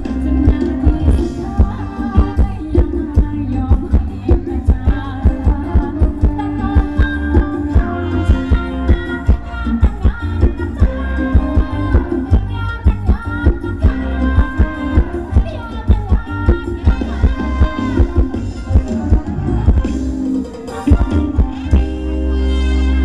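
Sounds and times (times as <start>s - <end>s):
quick drum beat: 0.0s - 22.0s
live band dance music: 0.0s - 23.0s
person singing: 0.0s - 23.0s.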